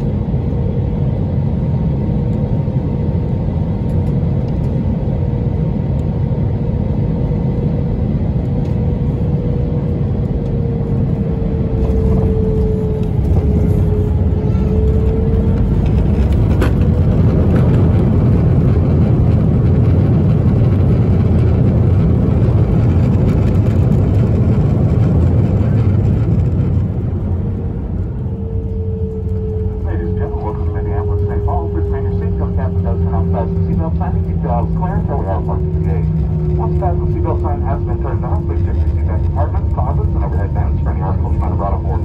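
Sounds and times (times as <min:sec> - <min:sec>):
aircraft cabin engine rumble: 0:00.0 - 0:42.0
faint whine: 0:21.6 - 0:42.0.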